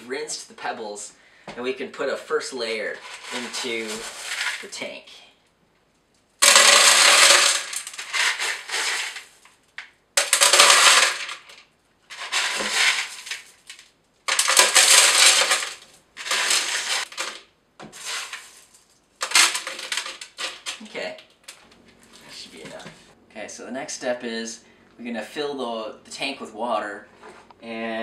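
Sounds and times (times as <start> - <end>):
gravel poured into plastic tank: 2.7 - 4.8, 6.4 - 9.5, 10.2 - 21.2.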